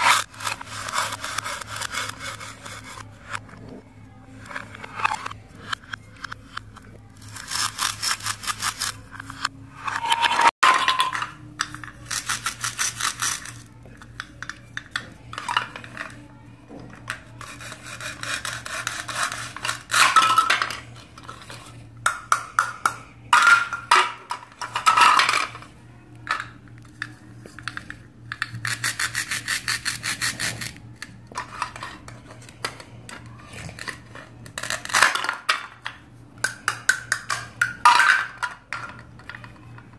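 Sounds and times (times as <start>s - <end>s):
plastic toy knife sawing: 0.0s - 3.4s, 17.4s - 20.1s, 28.5s - 30.8s.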